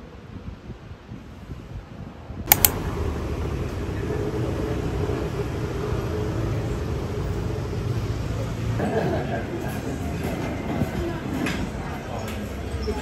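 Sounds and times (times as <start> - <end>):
city street traffic: 2.2 - 13.0
sharp clicks: 2.5 - 2.8.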